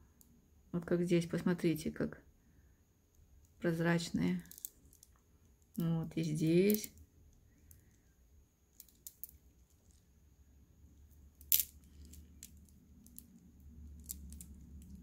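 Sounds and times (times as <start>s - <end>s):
stone beads clicking: 4.4s - 5.9s, 6.7s - 8.1s, 8.7s - 10.0s, 11.3s - 15.0s.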